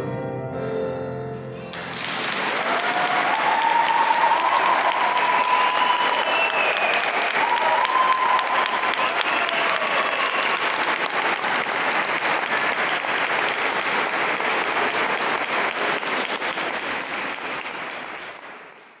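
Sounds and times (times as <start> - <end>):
audience applauding: 1.7 - 19.0.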